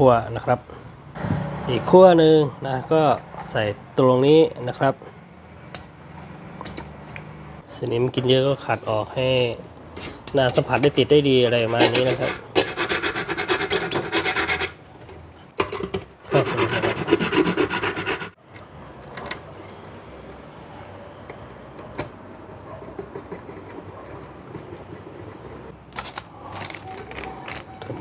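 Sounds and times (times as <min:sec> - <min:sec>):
metal file scraping rust: 0:11.4 - 0:14.8, 0:16.3 - 0:18.4.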